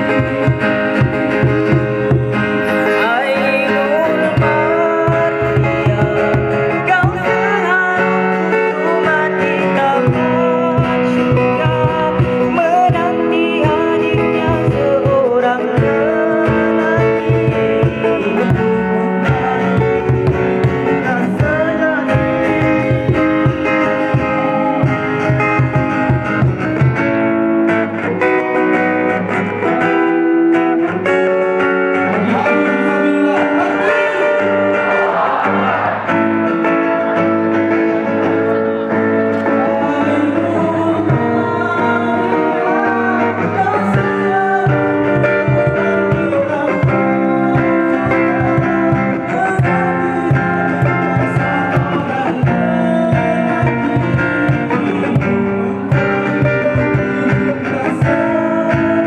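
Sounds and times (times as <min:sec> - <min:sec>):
hand drum beating: 0:00.0 - 0:27.4, 0:40.2 - 0:59.0
strummed acoustic guitar: 0:00.0 - 0:59.0
men singing: 0:01.8 - 0:25.9, 0:32.0 - 0:36.9, 0:39.4 - 0:59.0.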